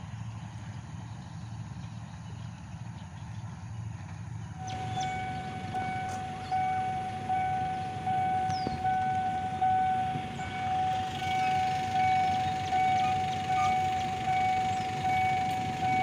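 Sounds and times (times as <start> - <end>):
crossing warning bell ringing: 4.6 - 16.0.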